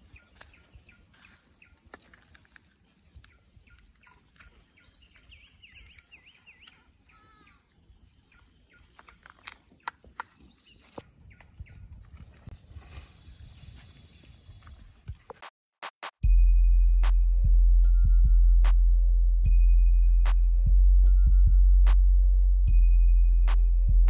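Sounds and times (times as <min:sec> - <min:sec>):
faint bird calls: 0:03.2 - 0:12.1.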